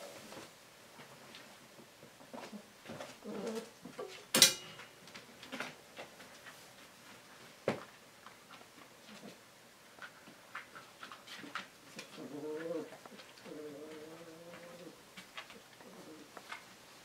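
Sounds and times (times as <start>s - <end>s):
dog whining: 12.1s - 15.0s.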